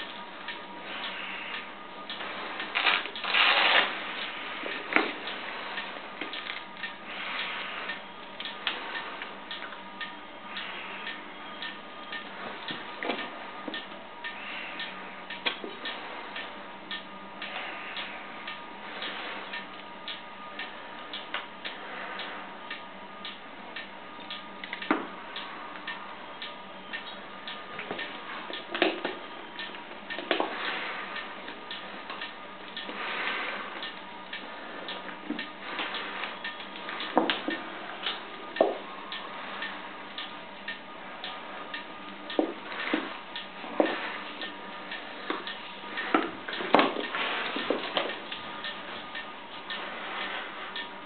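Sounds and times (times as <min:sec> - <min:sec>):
regular ticking: 0:00.0 - 0:51.0
pvc gloves and clothing rubbing: 0:02.2 - 0:07.9.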